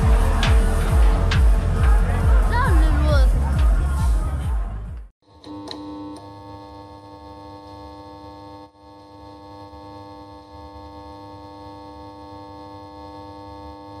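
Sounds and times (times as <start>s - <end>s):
low hum: 0.0s - 4.8s
electronic drone of held tones: 5.3s - 14.0s.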